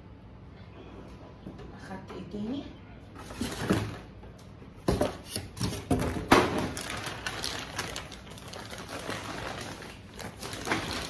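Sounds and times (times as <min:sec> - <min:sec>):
plastic bags rustling: 0:05.1 - 0:11.0.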